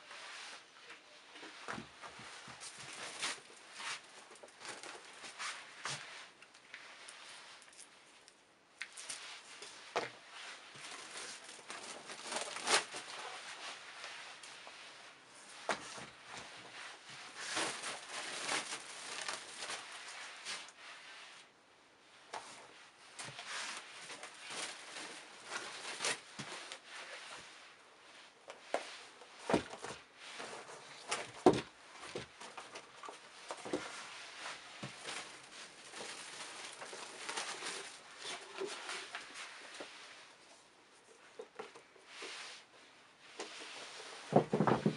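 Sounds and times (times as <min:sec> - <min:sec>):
shoes rustling and knocking: 0:28.5 - 0:39.9, 0:43.4 - 0:44.9.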